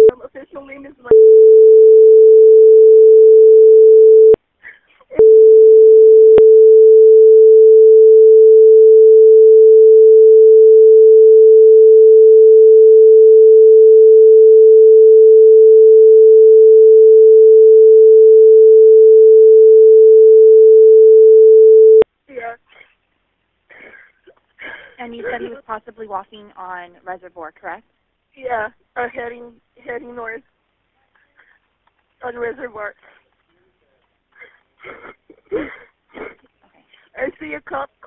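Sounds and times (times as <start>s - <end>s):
censor bleep tone: 1.1s - 4.4s, 5.2s - 22.0s.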